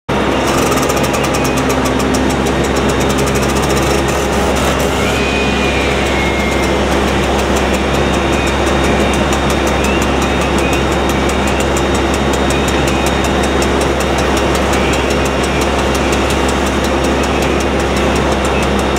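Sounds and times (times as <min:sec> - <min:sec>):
engine running steadily: 0:00.1 - 0:18.9
fast faint high ticking: 0:00.2 - 0:18.9.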